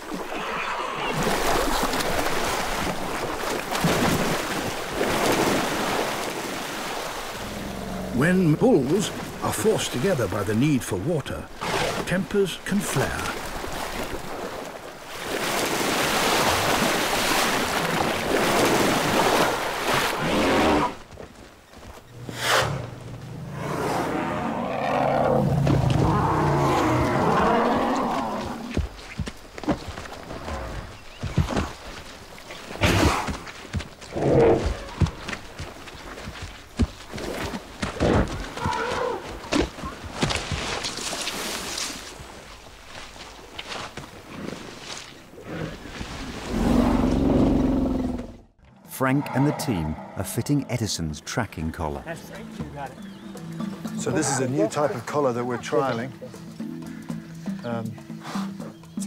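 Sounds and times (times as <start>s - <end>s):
elephants splashing in muddy water: 0.0s - 10.4s, 11.3s - 21.2s, 23.7s - 47.9s
elephant roaring: 22.2s - 28.7s, 46.5s - 48.4s, 49.1s - 50.3s.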